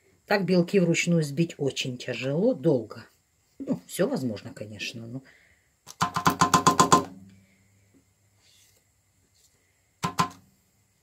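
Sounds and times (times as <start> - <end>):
utensil tapping on mixer bowl: 5.9 - 7.3, 10.0 - 10.4.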